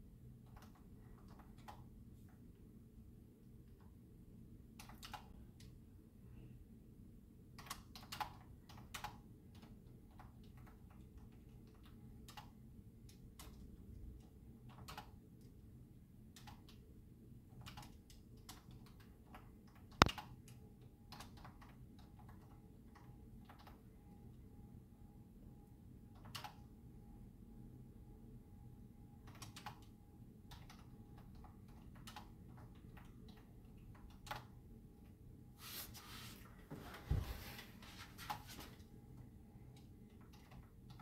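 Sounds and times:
typing on keyboard: 0:00.4 - 0:02.0, 0:04.7 - 0:05.8, 0:07.5 - 0:15.5, 0:16.3 - 0:16.8, 0:17.5 - 0:24.0, 0:26.1 - 0:26.7, 0:29.2 - 0:34.6, 0:39.7 - 0:41.0.

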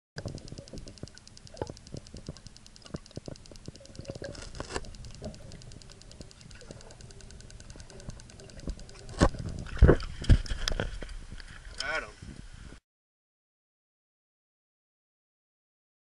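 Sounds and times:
faint rapid ticking: 0:00.2 - 0:10.0
sharp underwater clicks and knocks: 0:00.2 - 0:12.5
low underwater rumble: 0:00.2 - 0:12.8.

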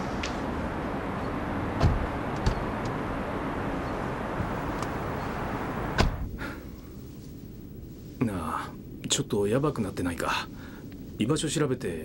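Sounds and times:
traffic noise inside car: 0:00.0 - 0:06.4.

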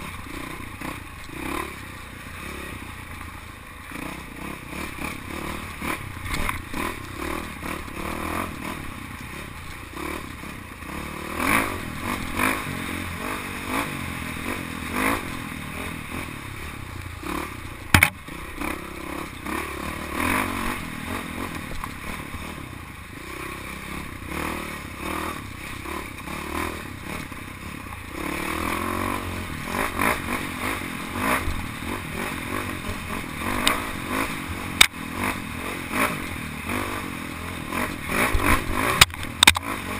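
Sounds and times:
dirt bike engine revving: 0:00.0 - 0:39.9
bike rattling over bumps: 0:02.4 - 0:22.7
sharp loud knock: 0:17.9 - 0:18.2.

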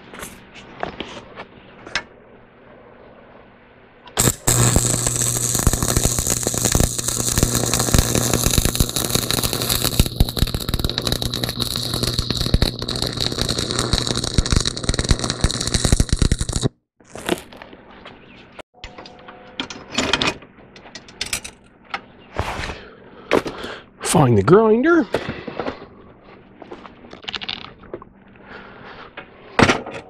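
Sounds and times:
low hum: 0:01.6 - 0:16.7
welding arc crackling: 0:04.2 - 0:17.5.

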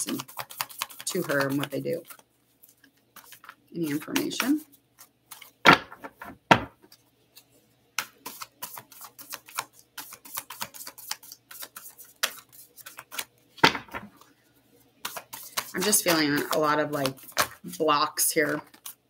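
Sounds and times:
cards being shuffled: 0:00.0 - 0:14.4, 0:15.0 - 0:19.0
thumps: 0:05.6 - 0:06.8.

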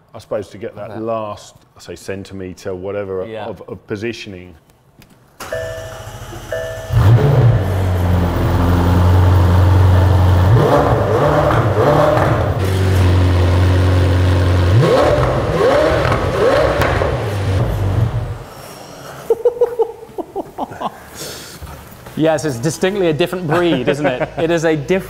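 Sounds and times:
car engine starting and idling: 0:05.4 - 0:18.5
engine revving: 0:06.2 - 0:18.5.

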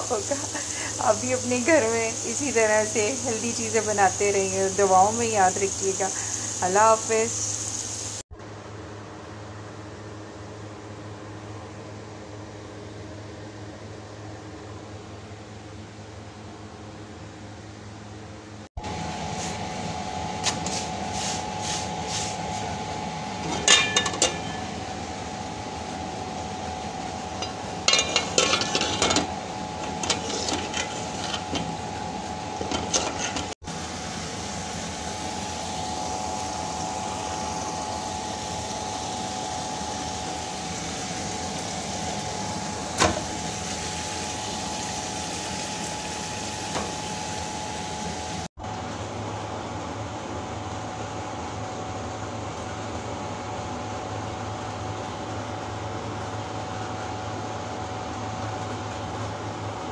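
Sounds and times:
cooking hiss: 0:00.0 - 0:08.2, 0:18.9 - 0:48.5
faint steady hum: 0:00.0 - 0:08.2.

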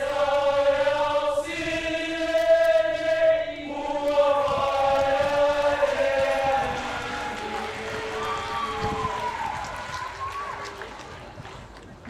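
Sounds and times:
choir singing sustained notes: 0:00.0 - 0:09.6.

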